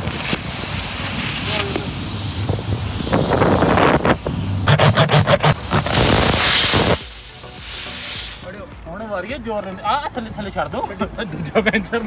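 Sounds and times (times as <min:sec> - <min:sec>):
tool rasping in tyre: 0:00.0 - 0:08.5
loud steady hiss: 0:00.0 - 0:08.7.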